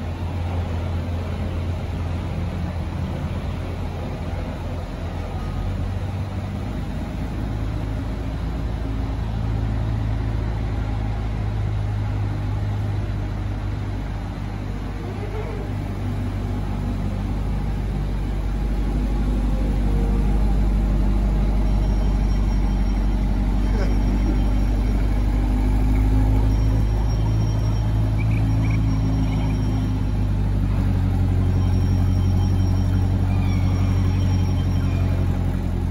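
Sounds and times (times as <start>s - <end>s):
car engine idling: 0.0s - 35.9s.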